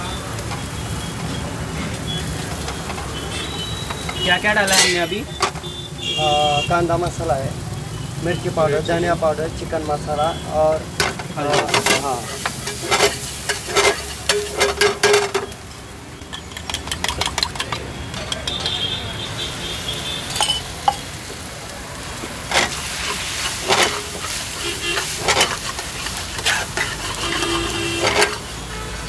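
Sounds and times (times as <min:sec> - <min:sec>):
rice sizzling in a pan: 0:00.0 - 0:29.0
metal spatula scraping a pan: 0:02.6 - 0:05.6, 0:10.9 - 0:15.6, 0:16.2 - 0:18.9, 0:22.4 - 0:29.0
eggs cracking: 0:16.2 - 0:18.8.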